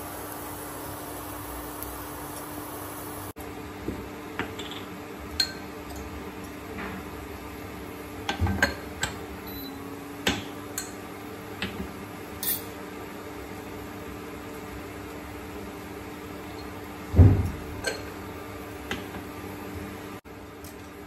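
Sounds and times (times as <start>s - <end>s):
metal spoon clinking on glass jars: 12.4s - 12.7s.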